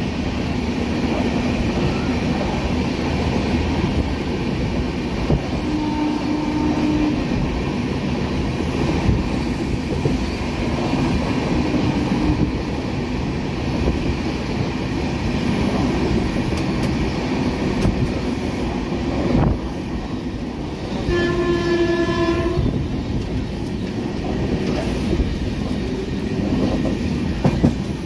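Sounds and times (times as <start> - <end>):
train rumble with clickety-clack: 0.0 - 28.0
train horn blast: 5.6 - 7.4, 11.6 - 12.6, 21.0 - 22.8.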